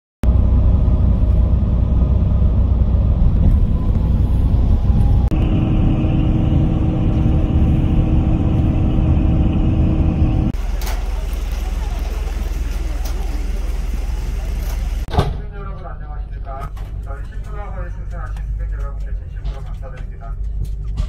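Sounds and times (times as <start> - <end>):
steady higher hum: 0.2 - 11.9
bus engine and tyres droning: 0.2 - 21.0.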